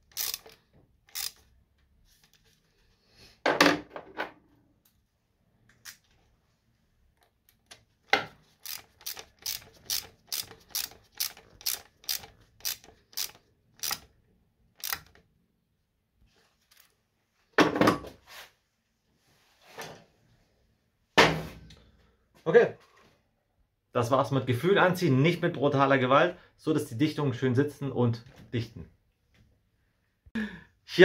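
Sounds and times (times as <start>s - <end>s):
ratchet wrench clicking: 0.0s - 1.5s, 8.6s - 14.1s, 14.8s - 15.2s.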